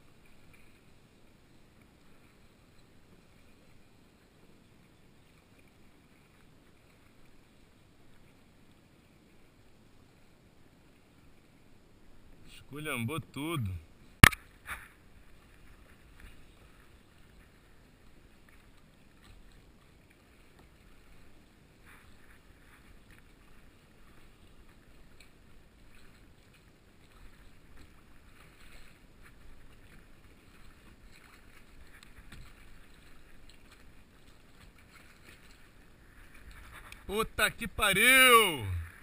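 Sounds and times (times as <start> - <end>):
small water splashes: 13.7 - 39.0
water lapping against plastic hull: 14.2 - 37.1.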